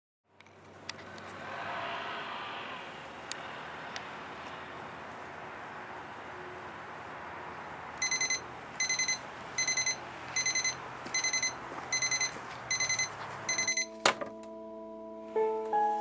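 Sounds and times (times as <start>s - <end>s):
alarm clock beeping: 8.0s - 14.1s.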